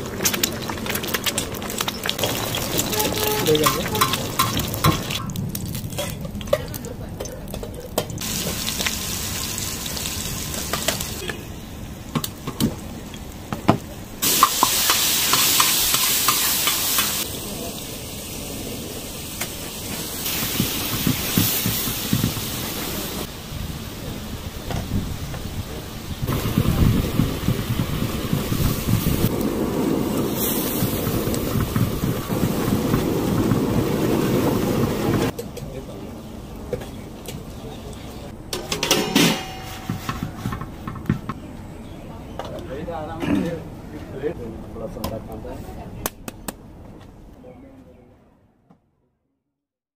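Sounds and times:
oil sizzling on a griddle: 0:00.5 - 0:06.5, 0:08.0 - 0:11.2, 0:14.2 - 0:29.4, 0:30.2 - 0:34.2
metal masher scraping: 0:02.9 - 0:05.1, 0:38.6 - 0:41.0.

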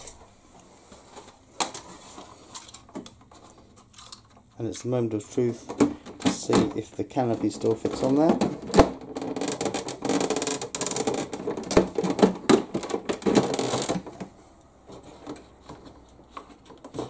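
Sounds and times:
plastic clicking and scraping: 0:05.6 - 0:14.3, 0:14.9 - 0:17.0.

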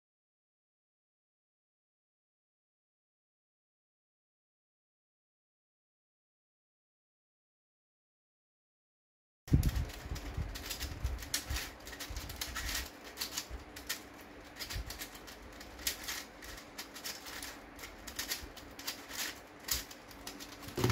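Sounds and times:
plastic puzzle layers clicking: 0:09.6 - 0:20.9.

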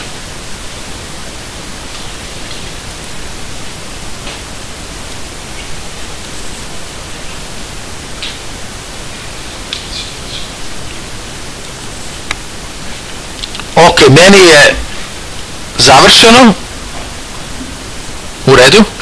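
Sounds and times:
background hiss: 0:00.0 - 0:19.0
faint clicks: 0:13.4 - 0:13.7.

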